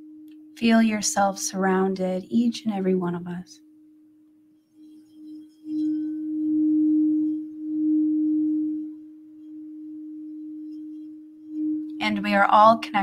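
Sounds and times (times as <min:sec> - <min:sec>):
singing bowl ringing: 0:00.0 - 0:00.7, 0:03.6 - 0:13.0.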